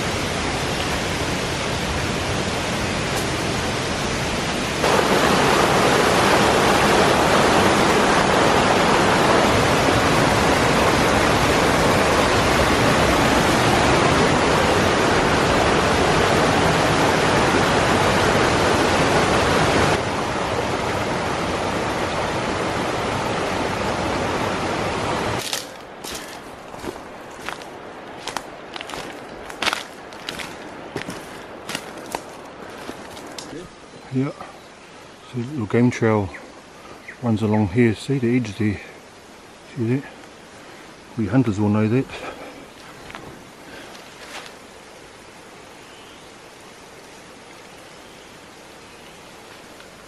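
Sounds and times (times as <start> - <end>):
flowing river water: 0.0 - 50.0.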